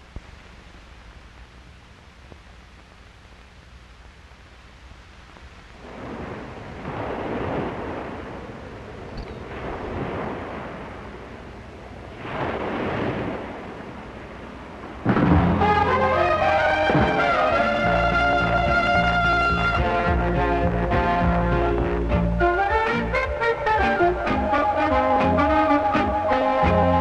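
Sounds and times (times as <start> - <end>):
faint low hum: 0.0 - 27.0
waves rushing onto beach: 6.1 - 11.5, 12.1 - 14.8.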